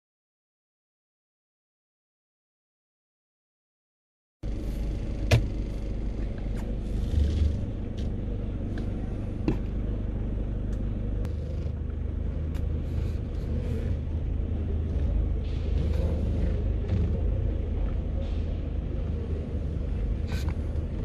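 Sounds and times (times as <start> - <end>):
low rumble of car park: 4.4 - 21.0.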